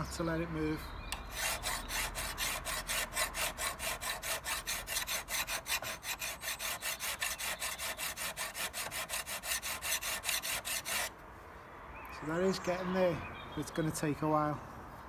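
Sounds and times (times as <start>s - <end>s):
file scraping metal blade: 1.2s - 11.1s.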